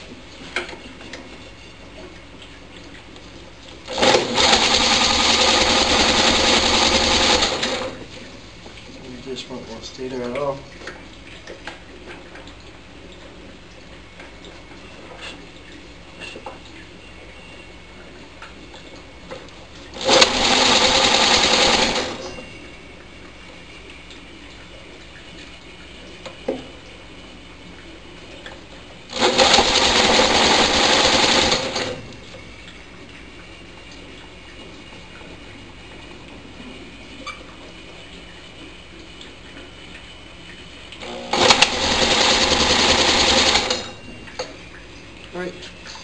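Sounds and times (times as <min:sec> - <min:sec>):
engine cranked by electric drill: 0:03.9 - 0:08.0, 0:20.0 - 0:22.4, 0:29.1 - 0:32.0, 0:41.0 - 0:44.0.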